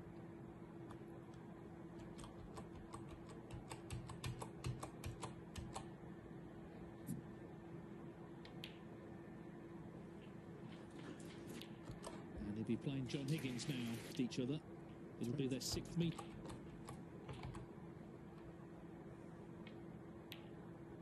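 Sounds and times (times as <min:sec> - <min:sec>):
steady low hum: 0:00.0 - 0:21.0
computer keyboard typing: 0:02.0 - 0:05.9, 0:15.6 - 0:17.7.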